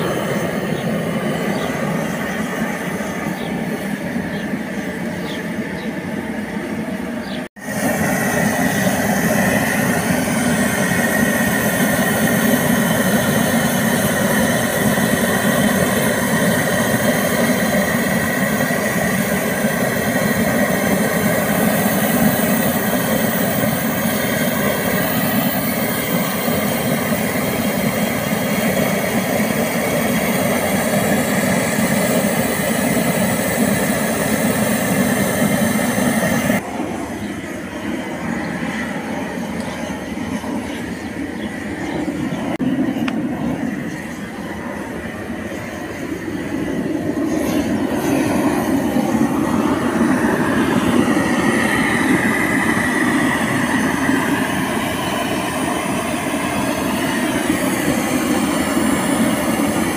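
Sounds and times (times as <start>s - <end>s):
gas torch burning: 0.0s - 59.9s.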